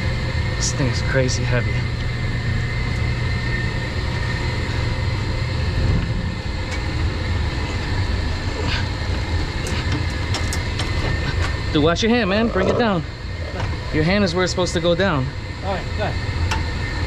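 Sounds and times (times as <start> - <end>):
boiler room equipment rumble: 0.0 - 17.0
faint steady whines: 0.0 - 17.0.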